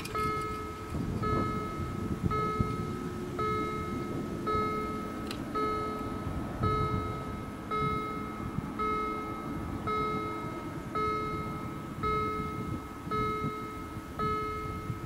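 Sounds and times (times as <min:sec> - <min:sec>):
level-crossing warning bell: 0:00.0 - 0:15.0.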